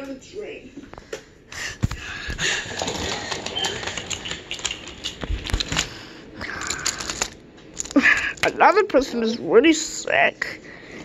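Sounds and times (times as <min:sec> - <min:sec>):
wooden toy train clicking and rattling: 0:02.7 - 0:08.9.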